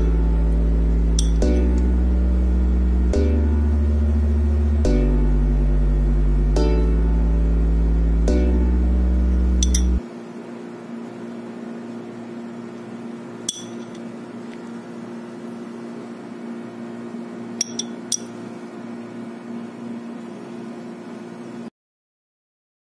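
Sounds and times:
background music: 0:00.0 - 0:10.0
steady low hum: 0:00.0 - 0:21.7
metal spoon clinking on ceramic: 0:01.2 - 0:01.4, 0:09.6 - 0:09.9, 0:13.5 - 0:14.0, 0:17.6 - 0:18.3.

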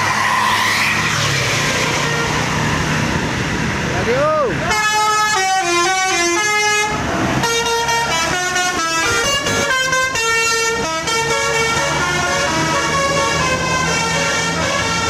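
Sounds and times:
multi-tone bus horn tune: 0:04.6 - 0:15.0.

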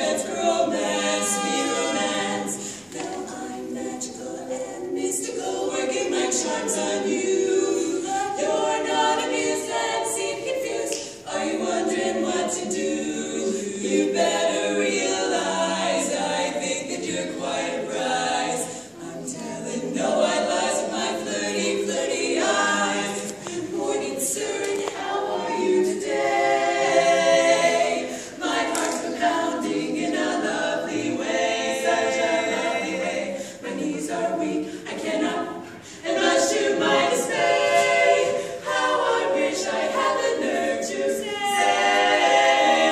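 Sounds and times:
female vocal quartet singing: 0:00.0 - 0:42.9.

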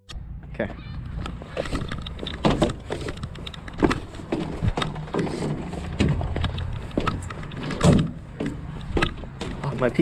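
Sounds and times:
footsteps on perforated metal decks: 0:00.6 - 0:10.0
knocks on playground equipment: 0:05.9 - 0:10.0.

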